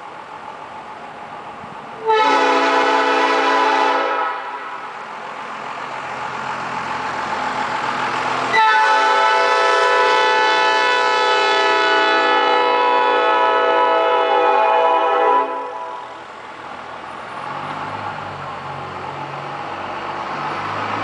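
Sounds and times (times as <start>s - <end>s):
train horn blasts: 2.0s - 4.8s, 8.5s - 16.1s.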